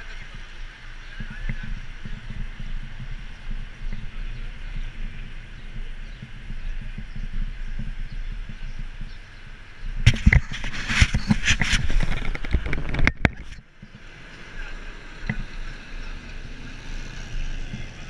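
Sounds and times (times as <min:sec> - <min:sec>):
wind buffeting microphone: 0:00.0 - 0:18.0
bicycle knocks and rattles: 0:01.2 - 0:14.1.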